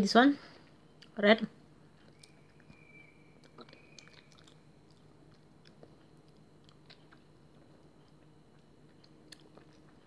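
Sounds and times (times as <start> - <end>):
low steady hum: 0.0 - 10.0
wet mouth clicks eating: 3.4 - 10.0.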